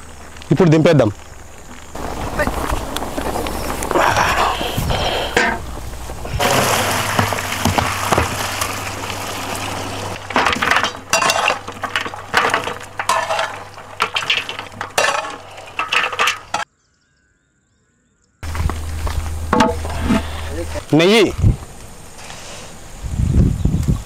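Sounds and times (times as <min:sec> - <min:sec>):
bones clattering in metal pots: 0:04.0 - 0:16.6, 0:18.5 - 0:20.8.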